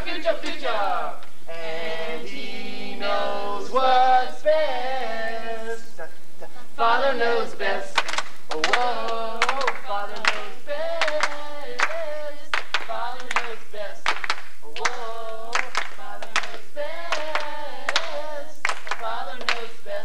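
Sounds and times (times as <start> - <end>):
group of voices singing: 0.0 - 20.0
hand claps: 8.0 - 19.8.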